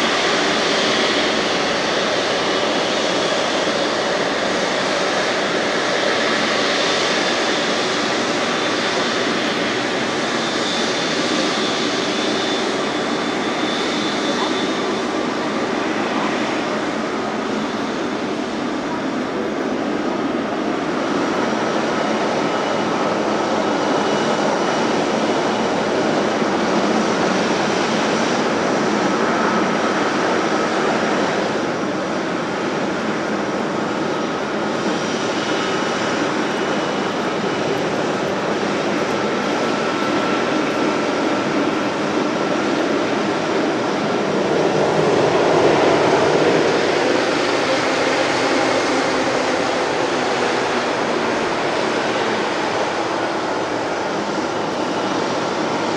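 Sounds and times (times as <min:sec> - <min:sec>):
jet engines rushing with high whine: 0:00.0 - 0:55.9.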